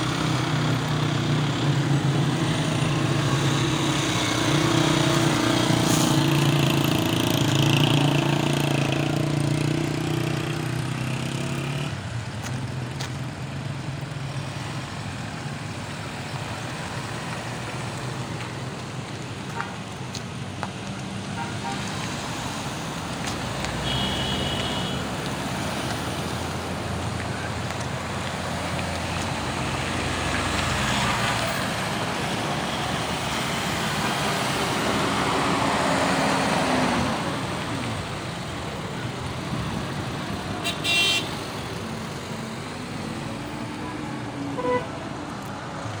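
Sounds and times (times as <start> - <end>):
vehicles driving past: 0.0 - 46.0
short car horn toot: 44.6 - 44.9.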